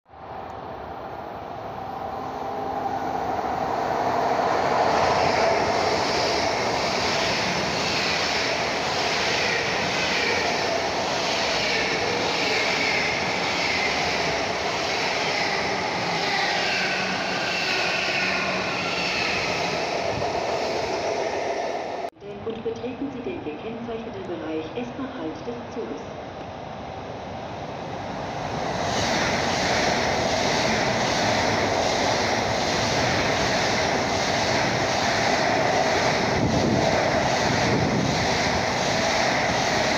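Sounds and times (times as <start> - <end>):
train rushing past: 0.1 - 22.2, 26.2 - 39.9
high whining train tones: 0.1 - 39.9.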